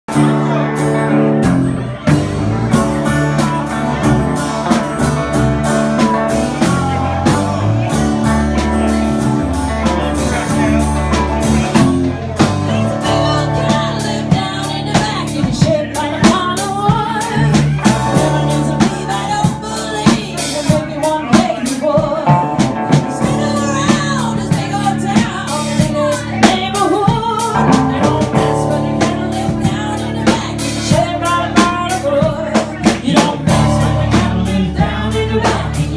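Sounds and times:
live blues band playing: 0.0 - 35.9
woman singing lead vocal: 12.9 - 35.9.

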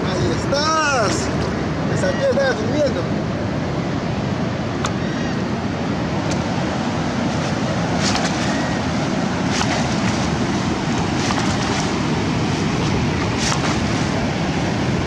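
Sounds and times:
surf washing up beach: 0.0 - 15.0
wind buffeting microphone: 0.0 - 15.0.

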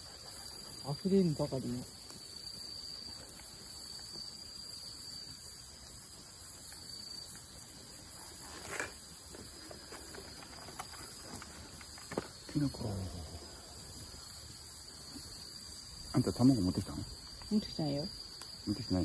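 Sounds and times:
faint outdoor hiss: 0.0 - 19.0
insects trilling: 0.0 - 19.0.

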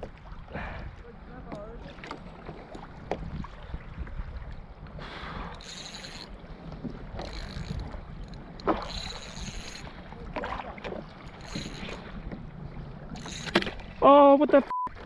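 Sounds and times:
wind rumble on microphone: 0.0 - 14.1
fishing reel drag buzzing: 5.4 - 6.4, 7.2 - 9.9, 11.3 - 12.1, 13.1 - 13.7.

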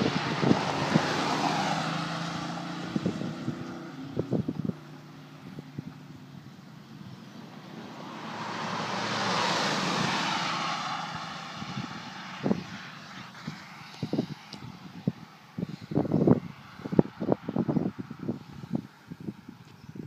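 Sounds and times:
car driving past: 0.0 - 14.7.

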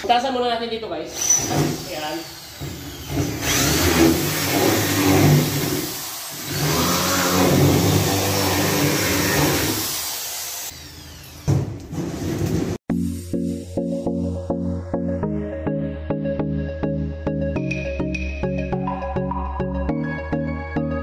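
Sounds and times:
electric drill boring through board: 1.1 - 12.6.

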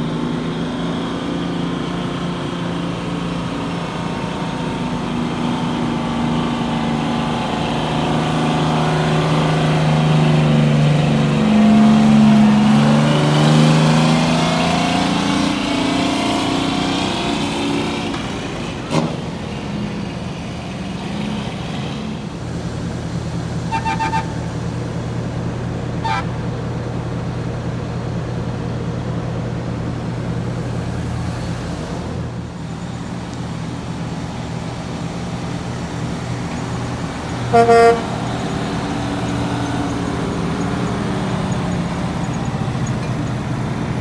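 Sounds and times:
truck engine droning: 0.0 - 44.0
truck pulling away: 0.0 - 44.0
faint horn toots: 23.7 - 24.4, 26.0 - 26.3, 37.5 - 38.2.

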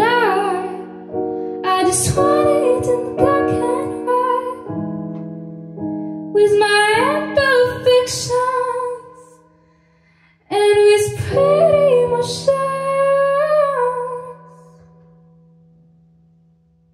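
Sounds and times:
woman singing: 0.0 - 4.9, 6.4 - 9.4, 10.5 - 14.8
electronic keyboard chords: 0.0 - 9.0.

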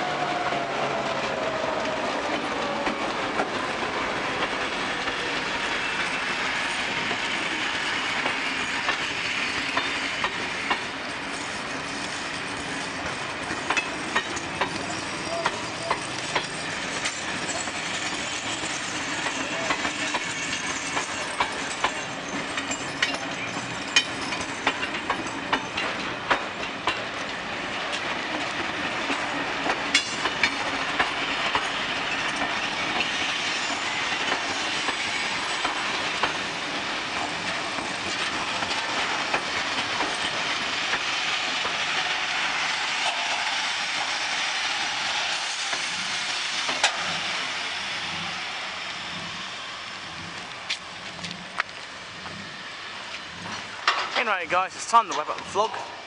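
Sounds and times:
wheels rumbling on rail: 0.0 - 56.0
wheels clicking over rail joints: 8.2 - 43.4, 46.7 - 47.3, 50.2 - 52.4, 53.0 - 56.0.

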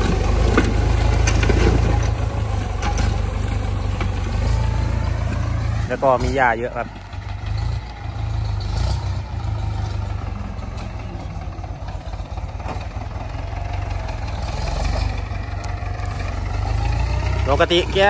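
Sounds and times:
tractor diesel engine under load: 0.0 - 18.0.

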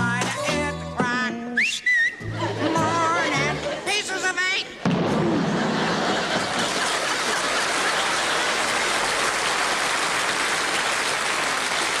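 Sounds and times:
audience applauding: 6.0 - 12.0.

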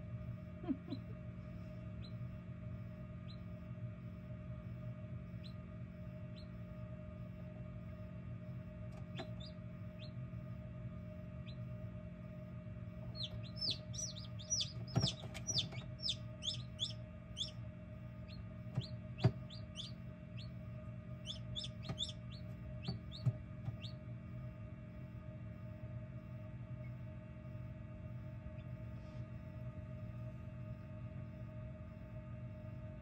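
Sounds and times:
incubator hum: 0.0 - 33.0
chicks peeping: 1.9 - 2.2, 8.9 - 10.2, 11.4 - 11.8, 13.0 - 24.1.

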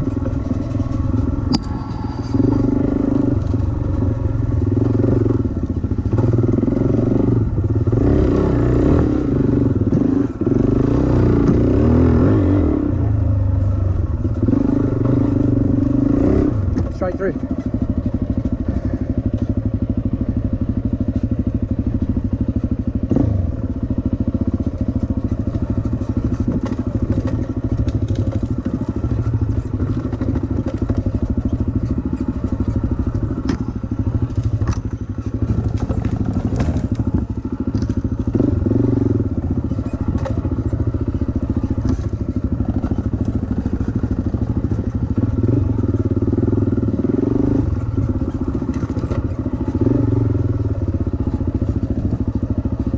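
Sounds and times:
dirt bike engine revving: 0.0 - 13.2, 14.2 - 21.2, 22.0 - 52.9
bike knocks and clatters: 23.9 - 46.7.

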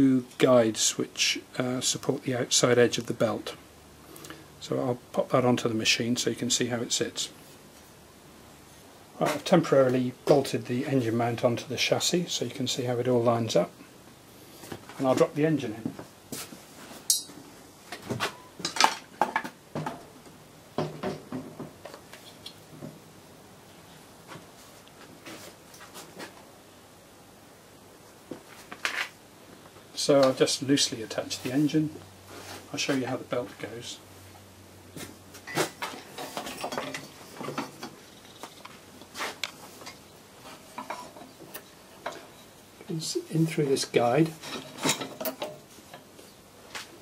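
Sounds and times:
metallic clunks and knocks: 20.8 - 21.8.

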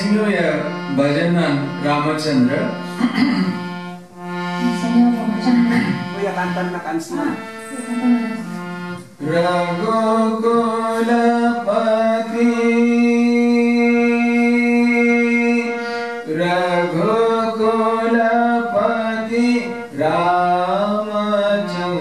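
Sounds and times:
harmonium: 0.0 - 22.0
man singing a devotional chant: 9.2 - 22.0.

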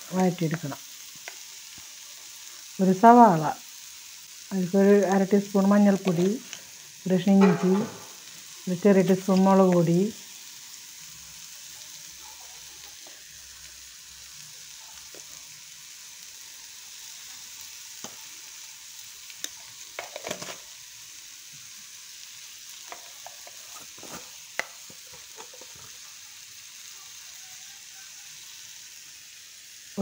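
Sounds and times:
vegetables sizzling in a pan: 0.0 - 30.0
metal spoon clicking on pan: 7.4 - 8.1.

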